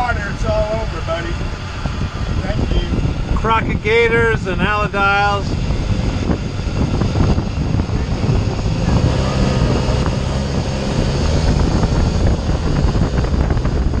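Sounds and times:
boat engine running: 0.0 - 14.0
wind buffeting microphone: 0.0 - 14.0.

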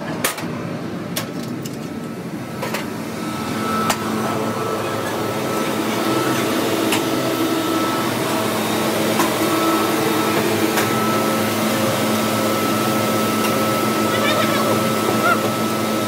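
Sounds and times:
workshop machinery running: 0.0 - 16.0
thin constant whine: 0.1 - 16.0.

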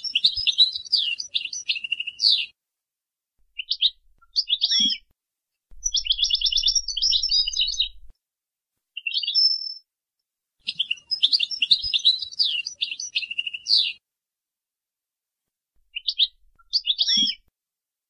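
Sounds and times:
goldfinch twittering and trilling: 0.0 - 2.5, 3.6 - 5.0, 5.8 - 8.1, 10.7 - 14.0, 15.9 - 17.4.

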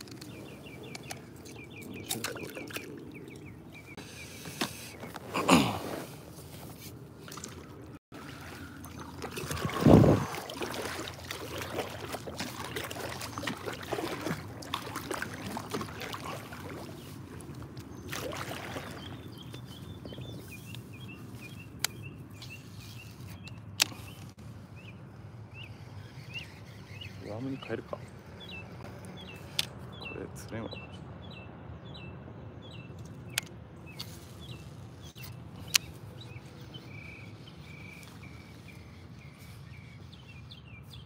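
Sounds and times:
water sloshing and trickling: 0.0 - 24.7.

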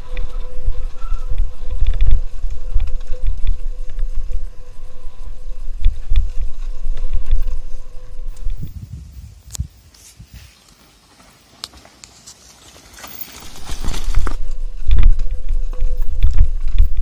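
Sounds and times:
wind buffeting microphone: 0.0 - 10.5
mountain bike rattling on dirt trail: 10.7 - 17.0.

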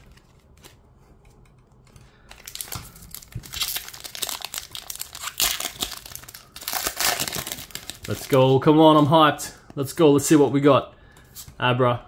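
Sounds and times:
foil pack tearing open: 2.3 - 8.5
foil pack crinkling: 2.3 - 8.6.

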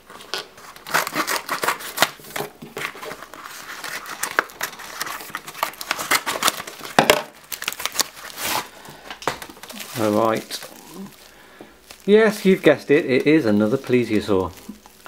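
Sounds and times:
plastic crinkling: 0.1 - 15.0
scissors snipping plastic: 0.3 - 3.0.

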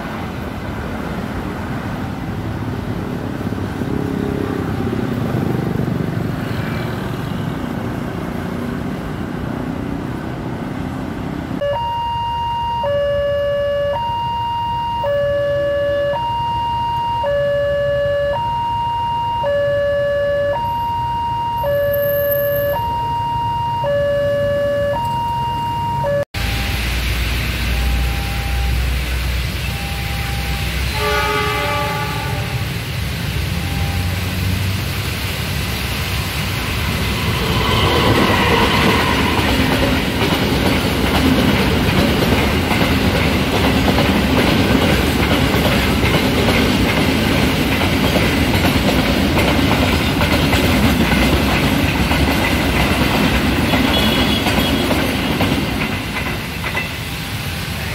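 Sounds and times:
train wheels rumbling on rails: 26.4 - 57.9
train horn: 30.9 - 32.7, 37.0 - 39.7, 53.7 - 55.0.

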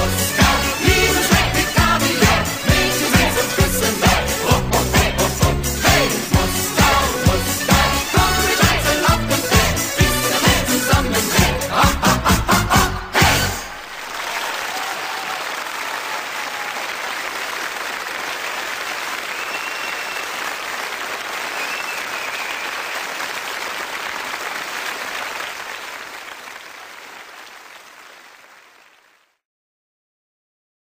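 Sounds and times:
crowd applause: 13.4 - 29.4.

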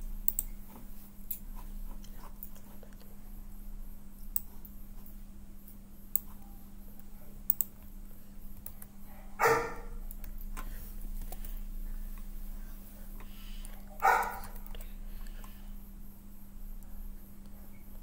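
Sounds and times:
electrical hum: 0.0 - 18.0.

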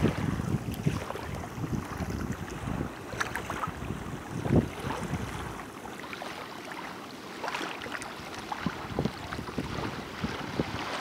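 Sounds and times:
wind rumbling on microphone: 0.0 - 5.8, 8.2 - 11.0
small waves lapping on shore: 0.0 - 11.0.

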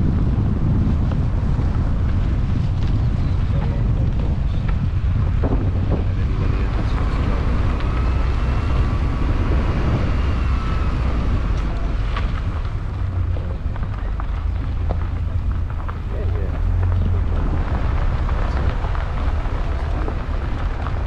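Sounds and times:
car rumbling: 0.0 - 21.0
faint whine: 0.0 - 21.0
wind buffeting microphone: 0.0 - 21.0.

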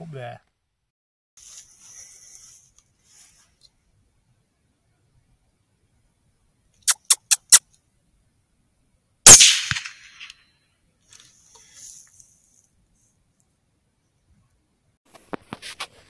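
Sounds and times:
quick sharp clicks: 6.8 - 7.6
rifle shot: 9.3 - 10.3.

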